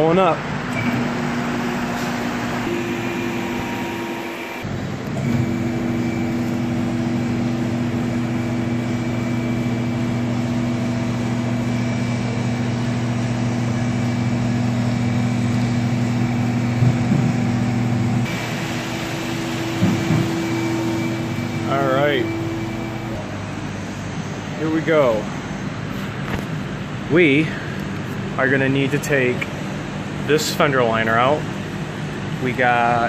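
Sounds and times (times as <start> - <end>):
hydraulic pump motor humming: 0.4 - 26.4.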